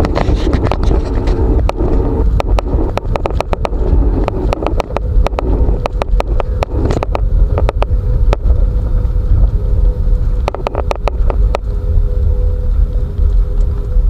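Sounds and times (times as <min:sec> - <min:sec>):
sharp rattles and knocks: 0:00.0 - 0:08.5
faint steady hum: 0:00.0 - 0:14.0
moving vehicle rumble: 0:00.0 - 0:14.0.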